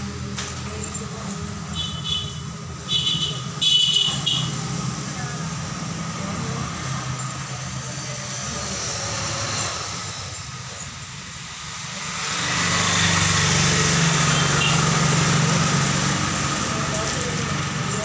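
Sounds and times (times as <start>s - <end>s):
engine humming: 0.0s - 18.0s.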